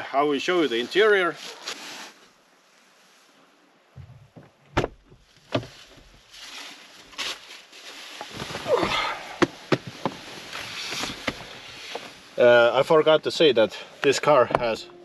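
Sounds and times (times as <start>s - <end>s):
seat creaking and knocks: 4.0s - 6.2s, 9.4s - 10.2s, 10.8s - 12.1s.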